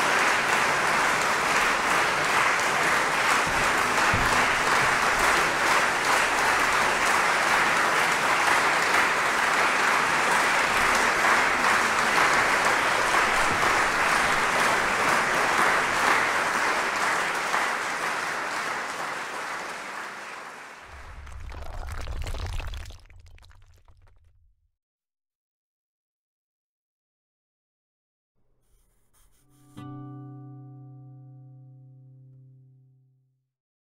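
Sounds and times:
audience applauding: 0:00.0 - 0:24.2
low rumbling sound effect: 0:20.9 - 0:24.6.

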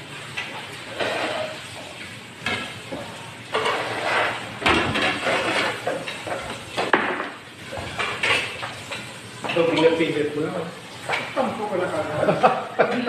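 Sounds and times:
dishes and utensils clattering: 0:00.2 - 0:10.2.

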